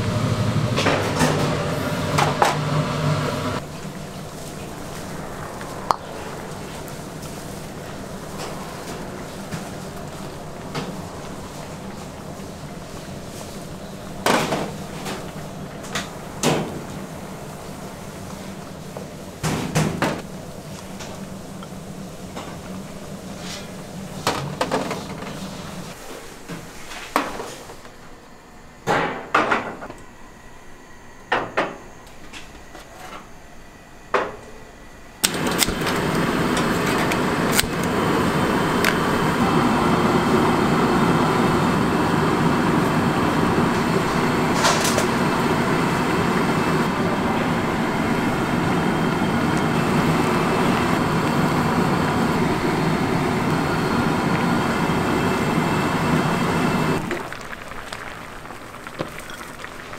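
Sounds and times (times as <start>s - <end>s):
gas burner rushing: 0.0s - 26.0s, 35.2s - 59.9s
soup boiling hard: 1.7s - 15.8s, 35.3s - 59.9s.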